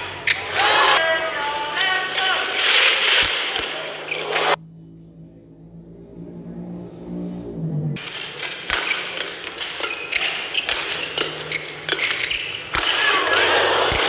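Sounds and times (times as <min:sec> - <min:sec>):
crowd noise: 0:00.0 - 0:04.6, 0:08.0 - 0:14.0
rackets hitting shuttlecock: 0:08.0 - 0:14.0.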